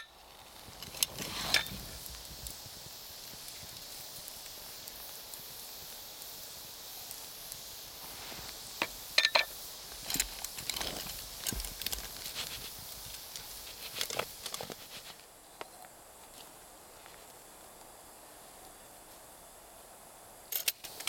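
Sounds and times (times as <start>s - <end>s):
sizzling hiss: 0.0s - 21.0s.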